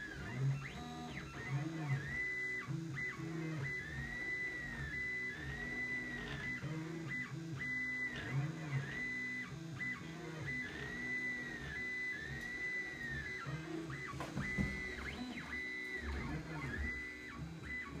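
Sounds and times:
stepper motors whining: 0.0s - 18.0s
brief knock: 14.2s - 15.0s.

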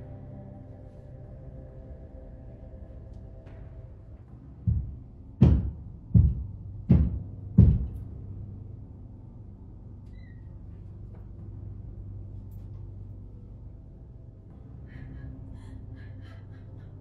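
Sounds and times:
steady low hum: 0.0s - 17.0s
heavy knocks: 4.7s - 8.0s.

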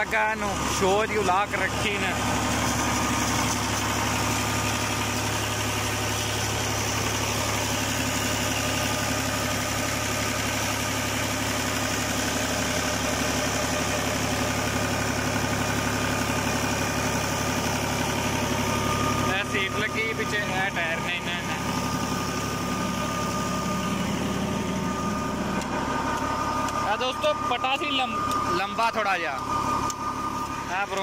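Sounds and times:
tractor diesel engine running: 0.0s - 31.0s.

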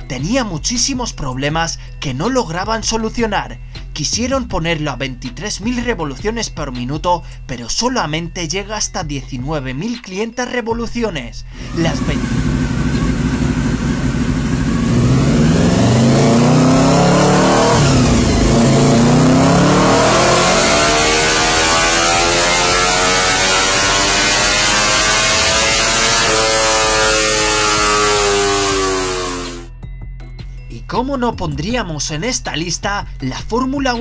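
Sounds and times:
motorcycle engine revving high: 11.6s - 29.7s.

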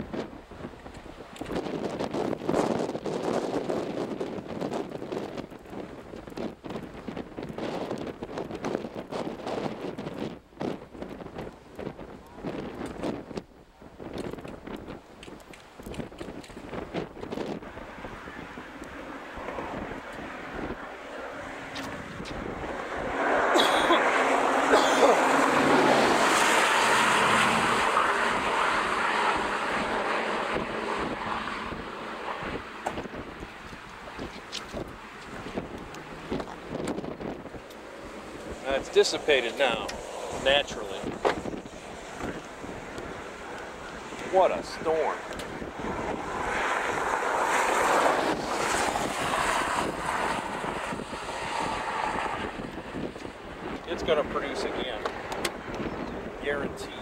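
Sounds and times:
wind buffeting microphone: 0.0s - 57.0s
vehicle passing by: 17.6s - 55.7s.

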